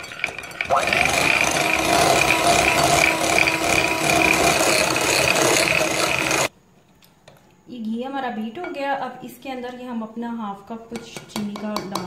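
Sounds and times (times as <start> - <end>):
electric hand mixer whining: 0.3 - 6.5.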